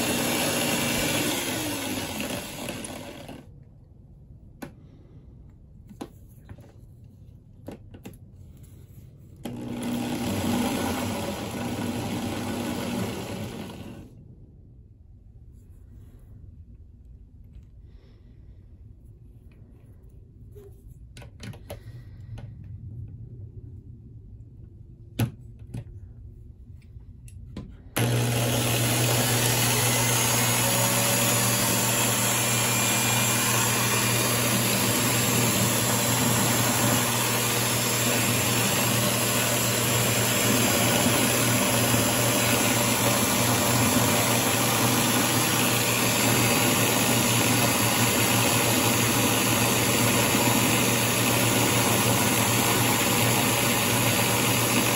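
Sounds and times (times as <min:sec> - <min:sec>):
power drill running: 0:00.0 - 0:03.5, 0:09.4 - 0:14.1, 0:28.0 - 0:54.9.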